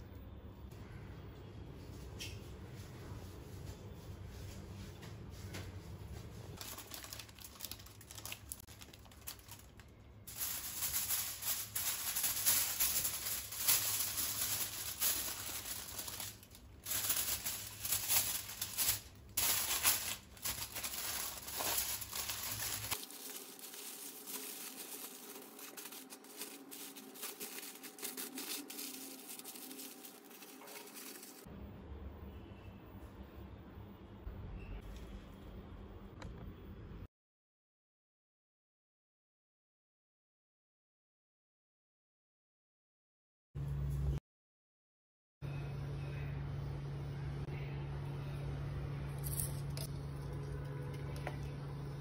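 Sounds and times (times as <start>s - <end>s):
aluminium foil crinkling: 6.6s - 31.5s.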